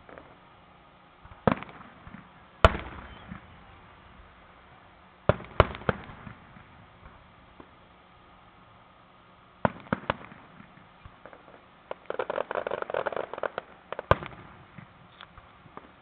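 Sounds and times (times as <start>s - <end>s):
rapid fireworks pops: 1.2s - 3.8s, 5.3s - 7.8s, 9.6s - 16.0s
fireworks bursting: 1.2s - 8.7s, 9.6s - 16.0s.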